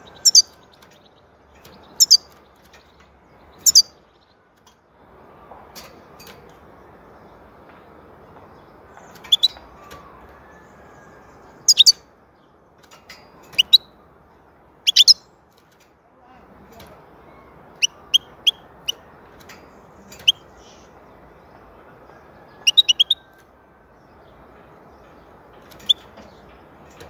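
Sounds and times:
goldfinch high-pitched calls: 0.2 - 0.6, 2.0 - 2.3, 3.6 - 3.9, 11.6 - 12.0, 13.6 - 13.9, 14.8 - 15.2, 22.7 - 23.2.

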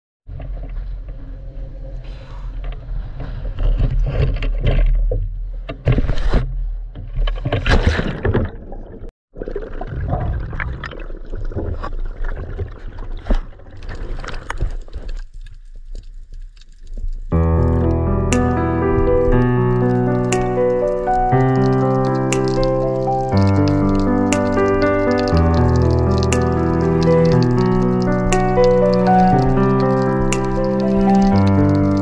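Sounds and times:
underwater bubbling: 8.4 - 14.6, 17.6 - 32.0.

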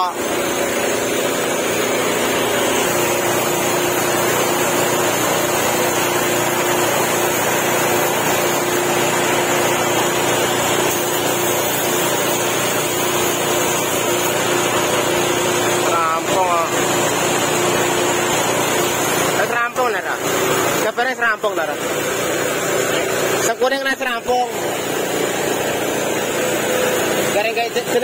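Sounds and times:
air compressor running: 0.0 - 28.0
steady hum: 0.0 - 28.0
paint spray gun hissing: 0.1 - 15.8.

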